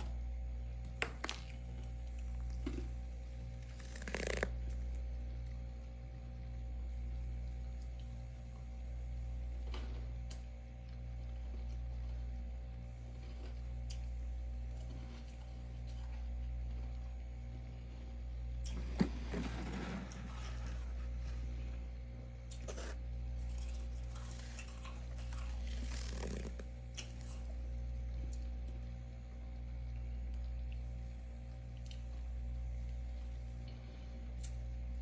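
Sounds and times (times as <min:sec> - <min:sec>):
low hum: 0:00.0 - 0:35.0
hand scraping freezer frost: 0:18.8 - 0:21.8, 0:22.6 - 0:26.7.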